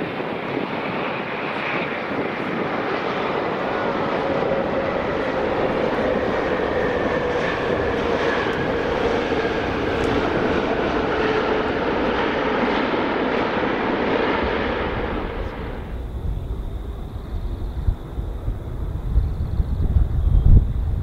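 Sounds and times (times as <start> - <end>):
jet engines rushing and whining: 0.0 - 21.0.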